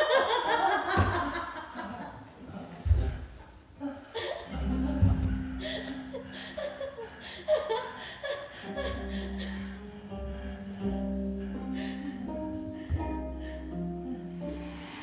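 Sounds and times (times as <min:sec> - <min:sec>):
music with low held notes: 0:04.5 - 0:06.2, 0:08.8 - 0:15.0.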